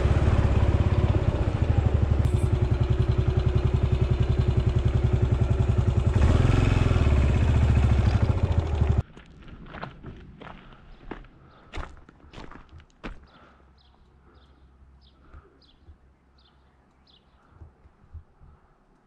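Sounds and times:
motorcycle engine running: 0:00.0 - 0:09.0.

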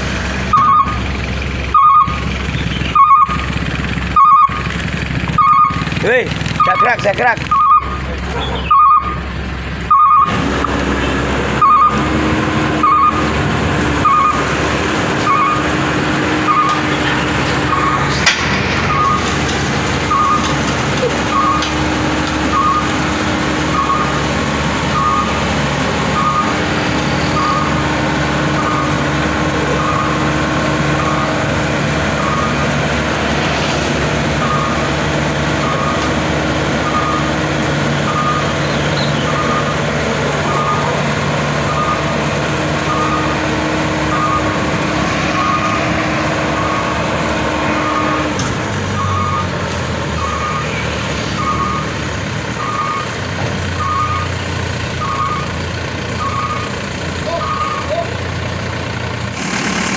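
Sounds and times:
combine harvester engine running: 0:00.0 - 0:59.9
warning beeper: 0:00.5 - 0:01.1, 0:01.7 - 0:03.5, 0:04.1 - 0:04.7, 0:05.3 - 0:09.2, 0:09.9 - 0:10.4, 0:11.5 - 0:14.6, 0:15.2 - 0:17.0, 0:17.6 - 0:18.1, 0:18.8 - 0:19.4, 0:20.0 - 0:32.8, 0:34.3 - 0:37.4, 0:38.0 - 0:54.3, 0:55.0 - 0:55.6, 0:56.2 - 0:58.0.

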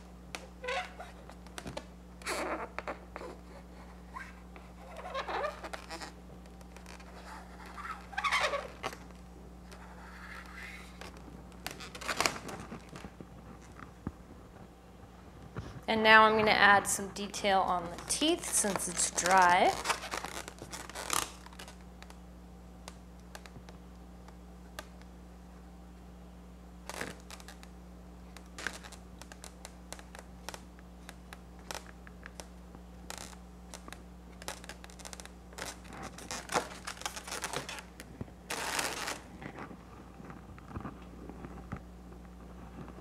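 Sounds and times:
hands rustling balloons: 0:00.0 - 0:14.7, 0:17.1 - 0:22.1, 0:26.9 - 0:27.7, 0:28.4 - 0:41.8
steady low hum: 0:00.0 - 0:43.0
marker scratching on balloon: 0:00.6 - 0:01.4, 0:02.2 - 0:06.2, 0:06.8 - 0:09.0, 0:09.7 - 0:12.4.

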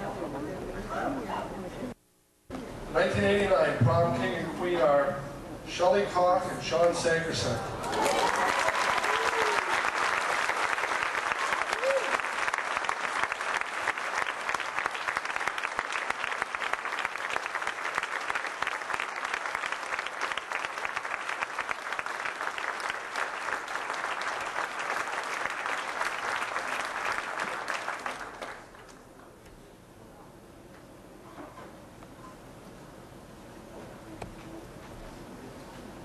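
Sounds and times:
crowd applauding: 0:07.8 - 0:29.0.

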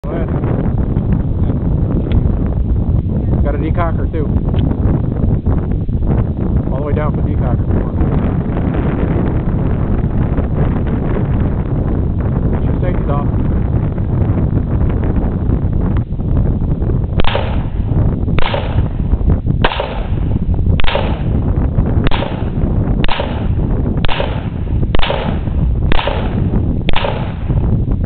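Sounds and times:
pistol shots with echo: 0:17.2 - 0:17.8, 0:18.4 - 0:19.0, 0:19.6 - 0:21.4, 0:22.0 - 0:27.6.

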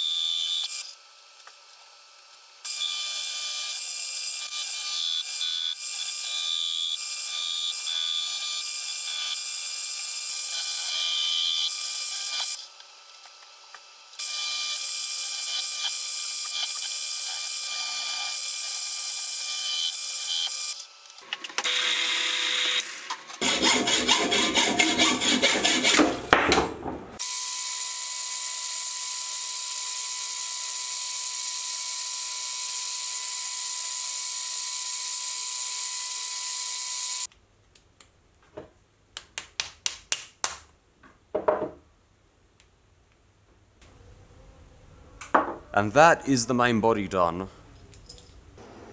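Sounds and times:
lathe cutting: 0:23.4 - 0:26.0.

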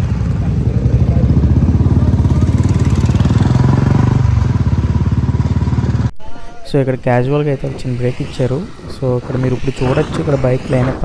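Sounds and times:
motorcycle engine running: 0:00.0 - 0:06.1.

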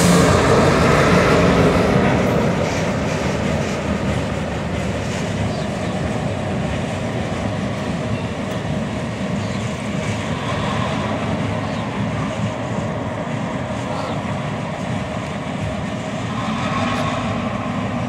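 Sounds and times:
diesel locomotive engine drone: 0:00.0 - 0:18.0
rolling train wheels: 0:00.0 - 0:18.0.

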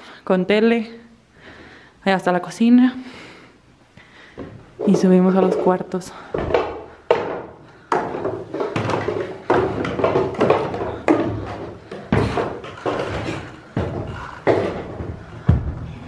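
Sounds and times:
footsteps climbing stairs: 0:04.2 - 0:16.0.

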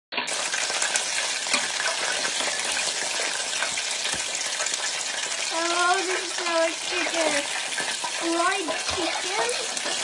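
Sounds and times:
hot oil sizzling in a fryer: 0:00.1 - 0:10.0.

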